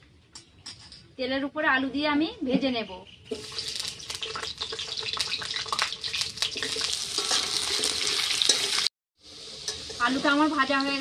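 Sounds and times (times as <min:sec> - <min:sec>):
potatoes sizzling in hot oil: 0:03.3 - 0:11.0
metal spatula scraping pan: 0:06.0 - 0:10.8.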